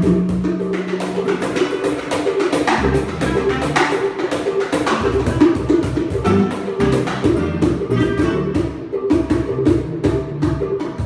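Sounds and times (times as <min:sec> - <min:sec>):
cajon and hand drums: 0:00.0 - 0:11.0
electric guitar: 0:00.4 - 0:11.0
upright bass: 0:02.7 - 0:04.2, 0:04.9 - 0:11.0
clarinet melody: 0:02.8 - 0:09.2.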